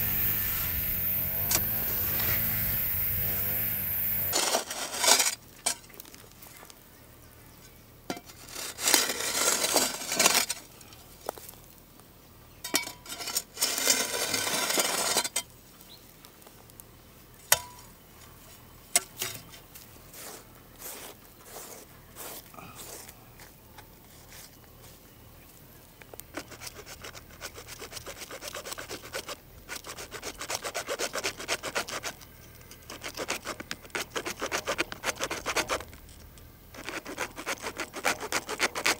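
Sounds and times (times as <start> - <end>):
hand sawing: 0.0 - 5.1, 26.3 - 32.2, 32.9 - 35.8, 36.8 - 38.9.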